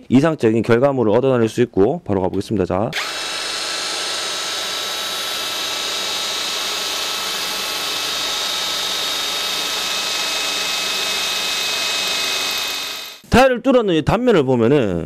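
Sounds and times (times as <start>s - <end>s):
drill bit grinding tile: 3.0s - 13.2s
drill motor whine: 3.0s - 13.2s.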